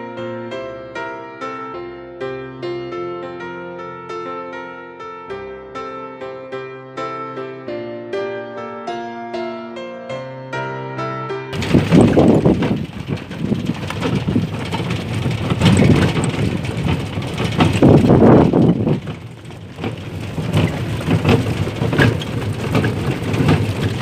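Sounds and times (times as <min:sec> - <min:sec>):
carriage wheels rattling on road: 0:11.6 - 0:24.0
knocks: 0:11.6 - 0:24.0.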